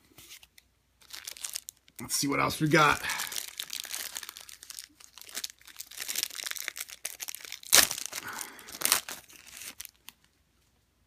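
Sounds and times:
plastic wrapper tearing and crinkling: 1.0 - 10.3.

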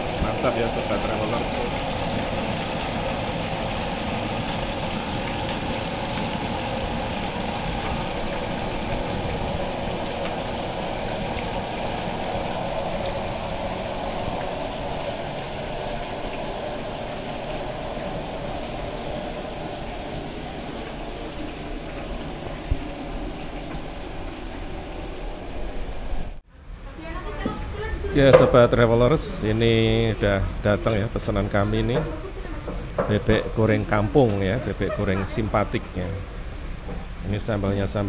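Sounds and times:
meat sizzling in hot oil: 0.0 - 26.0
gas burner flame: 0.0 - 26.5.

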